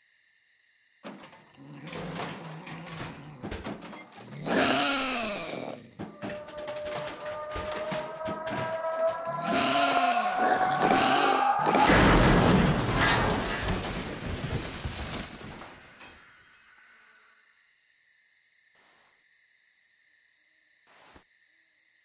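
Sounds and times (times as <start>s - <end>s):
crickets chirping: 0.0s - 22.0s
loud crash: 6.0s - 16.5s.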